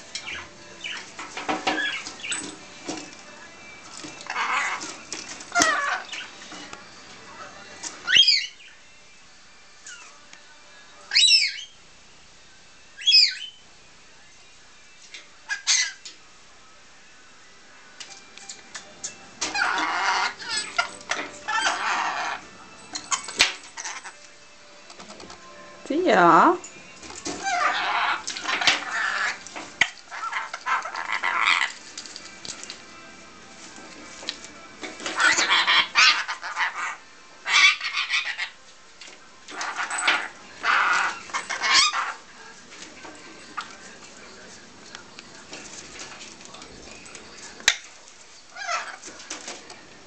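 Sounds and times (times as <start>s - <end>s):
lorikeet shrill calls: 0.2s - 1.1s, 5.5s - 6.4s, 8.0s - 8.8s, 11.1s - 11.8s, 13.0s - 13.6s, 15.5s - 16.0s, 19.5s - 22.4s, 27.4s - 29.4s, 35.2s - 38.6s, 39.6s - 42.2s
parrot squawking and chattering: 0.2s - 2.6s, 4.2s - 6.5s, 7.4s - 8.8s, 11.1s - 11.8s, 13.0s - 13.6s, 15.4s - 16.1s, 19.4s - 24.2s, 27.2s - 31.9s, 35.0s - 38.6s, 39.5s - 42.3s, 48.5s - 49.1s
lorikeet harsh screech: 4.3s - 4.9s, 5.5s - 6.4s, 8.0s - 8.8s, 11.1s - 11.8s, 13.0s - 13.6s, 15.5s - 16.0s, 19.5s - 22.4s, 27.4s - 29.4s, 30.1s - 31.8s, 35.2s - 38.6s, 39.6s - 42.2s.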